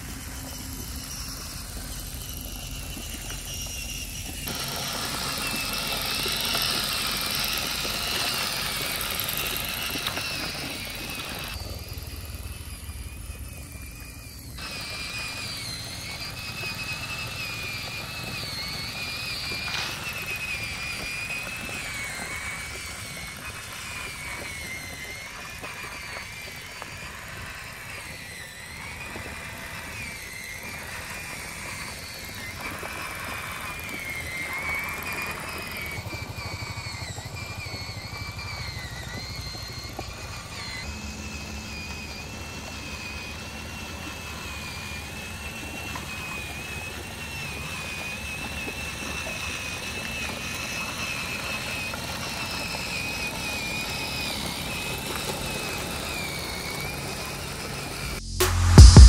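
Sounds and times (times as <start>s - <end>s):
small motor whining: 0.0s - 59.0s
low drone: 55.2s - 59.0s.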